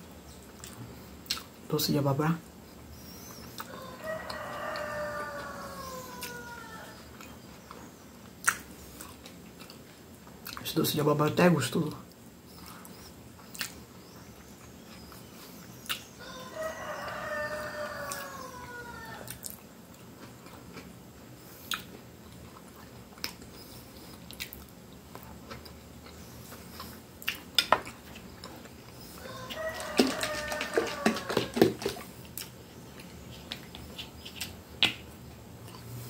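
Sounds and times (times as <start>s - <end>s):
chewing and mouth smacks: 0.4s - 1.6s, 3.4s - 3.7s, 7.1s - 10.7s, 12.1s - 16.1s, 19.3s - 35.9s.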